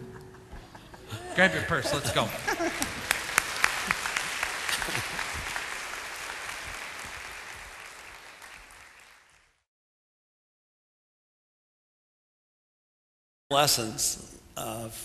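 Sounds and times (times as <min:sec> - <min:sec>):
congregation applauding: 0:01.8 - 0:09.6.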